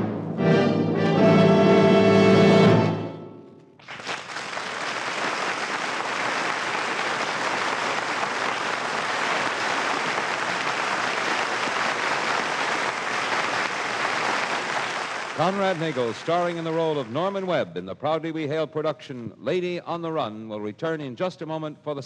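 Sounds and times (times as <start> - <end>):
applause: 3.8 - 17.7.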